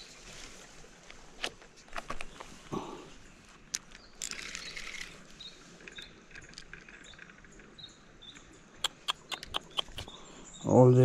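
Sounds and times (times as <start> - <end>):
small birds chirping: 2.1 - 11.0.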